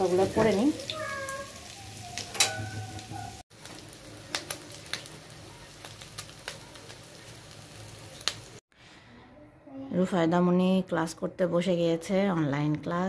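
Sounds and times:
kitchen utensils clicking: 2.2s - 3.1s.

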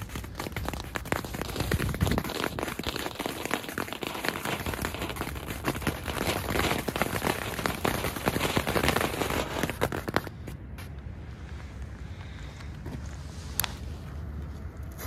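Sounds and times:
fireworks crackling: 0.0s - 10.6s.

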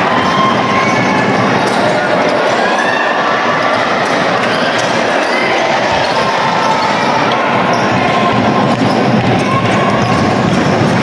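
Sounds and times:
basketball bouncing on court: 5.9s - 11.0s.

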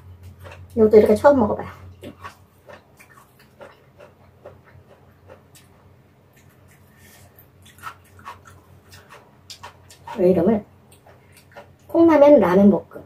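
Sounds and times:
soft chewing and mouth smacks: 0.0s - 0.8s, 1.7s - 12.0s
low steady hum: 0.0s - 13.0s.

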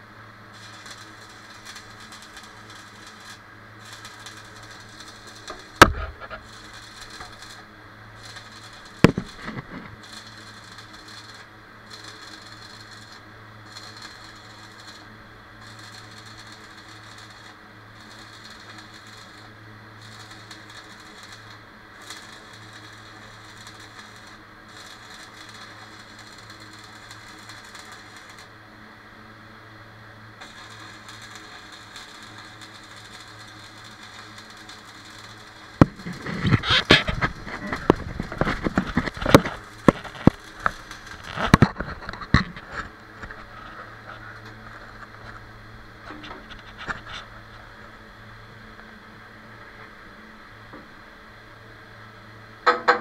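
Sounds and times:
welding arc crackling: 0.0s - 51.0s
low hum: 0.0s - 53.0s
sharp metal knocks: 52.6s - 53.0s.

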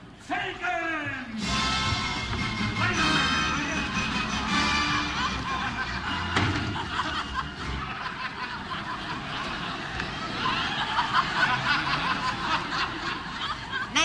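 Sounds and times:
stage music: 0.5s - 10.4s
audience chuckling and murmuring: 1.6s - 14.0s.

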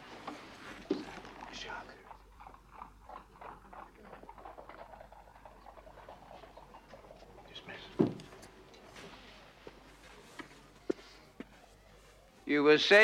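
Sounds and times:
light footsteps: 7.8s - 12.5s.

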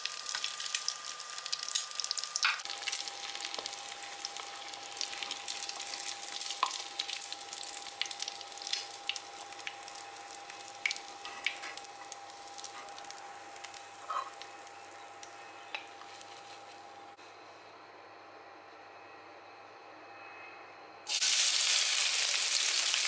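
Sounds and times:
hot oil sizzling and popping: 0.0s - 16.7s, 21.1s - 23.0s
faint steady tone: 17.1s - 21.0s.

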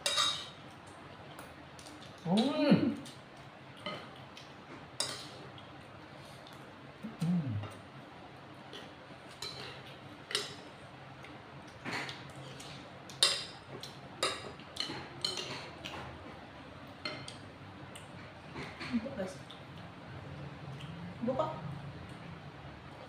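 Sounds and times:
cutlery clinking on plates: 0.0s - 0.6s, 5.0s - 5.4s, 9.3s - 10.6s, 13.1s - 16.1s.

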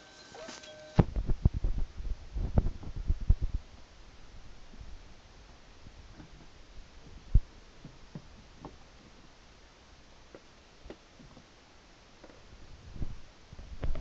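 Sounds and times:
soft low thumps and knocks: 1.0s - 3.7s, 5.9s - 9.3s.

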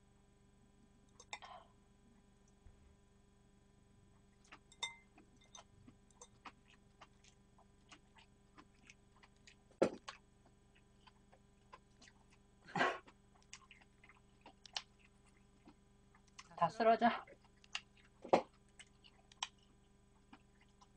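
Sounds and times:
chewing and mouth clicks: 4.3s - 12.4s, 13.0s - 16.6s, 17.2s - 20.9s.

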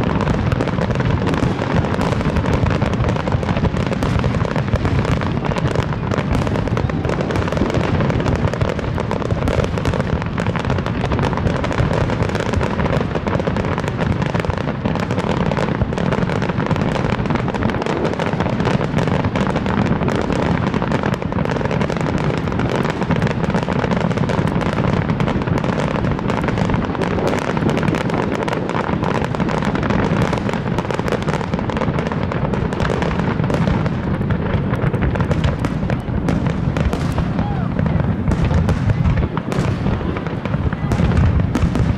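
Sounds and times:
fireworks bangs and pops: 0.0s - 41.9s.

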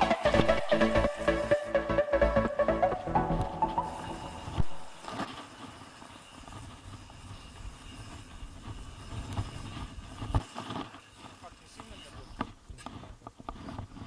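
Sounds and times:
electronic music: 0.0s - 5.2s
mountain bike rumbling on dirt: 4.6s - 14.0s.

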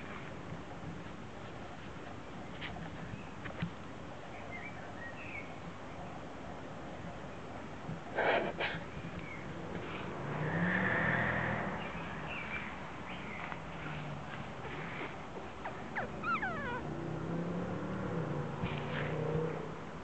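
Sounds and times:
puppy whimper: 15.6s - 16.9s.

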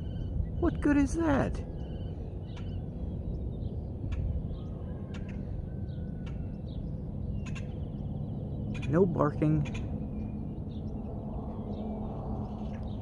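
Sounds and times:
low rumble: 0.0s - 13.0s
faint bird chirps: 1.6s - 9.0s.

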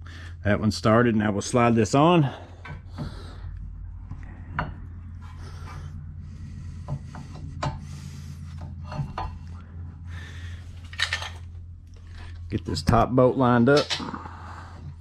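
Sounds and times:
low hum: 0.0s - 15.0s
metal brake parts clinking and scraping: 10.7s - 12.5s.

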